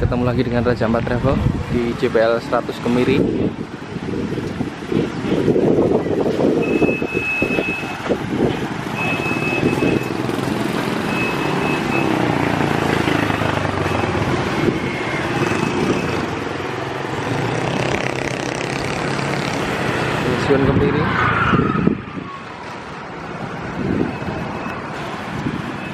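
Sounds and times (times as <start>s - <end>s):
motorcycles passing: 0.0s - 25.9s
high thin beeping tone: 6.6s - 7.9s, 9.0s - 10.2s, 11.0s - 12.2s
car passing: 7.5s - 25.9s.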